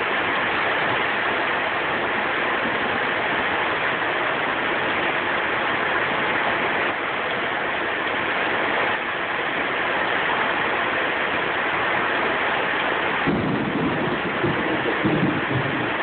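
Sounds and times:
heavy rain falling: 0:00.0 - 0:16.0
low rumble: 0:13.3 - 0:16.0.

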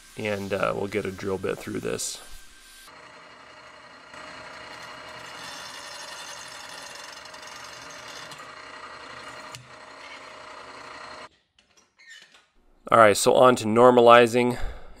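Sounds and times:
drill press drilling metal: 0:02.9 - 0:11.3.

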